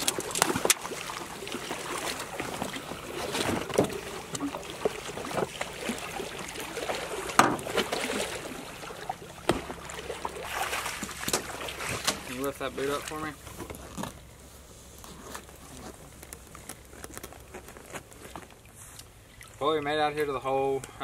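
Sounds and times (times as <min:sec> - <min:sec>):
decoys splashing into water: 0:00.0 - 0:13.4.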